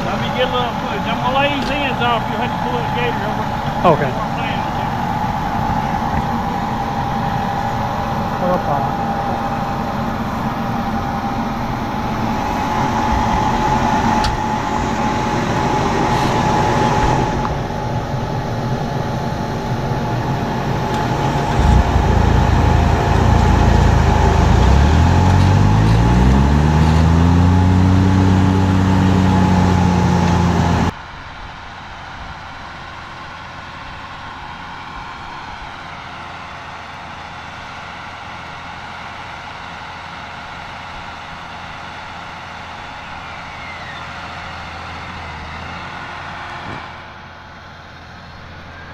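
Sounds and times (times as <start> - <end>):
steady whine: 0.0 - 48.9
tractor engine running: 0.0 - 48.9.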